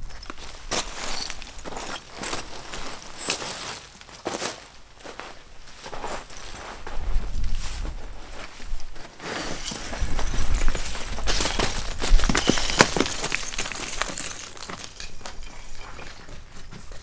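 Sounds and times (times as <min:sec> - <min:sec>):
small stones clattering: 0:00.0 - 0:04.4, 0:09.4 - 0:16.5
boots crunching on gravel: 0:00.1 - 0:17.0.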